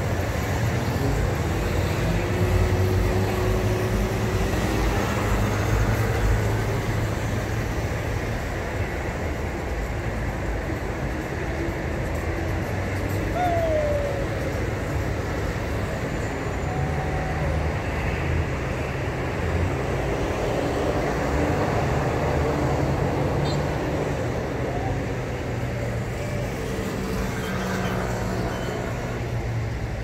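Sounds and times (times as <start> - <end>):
vehicle engines rumbling: 0.0 - 30.0
faint voices: 13.1 - 15.1.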